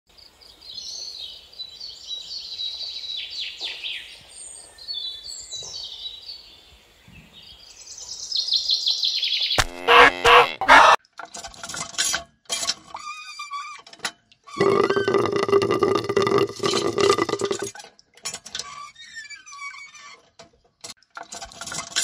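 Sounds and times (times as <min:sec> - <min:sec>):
small birds chirping and trilling: 0:00.2 - 0:10.2
loud animal calls: 0:09.6 - 0:11.0.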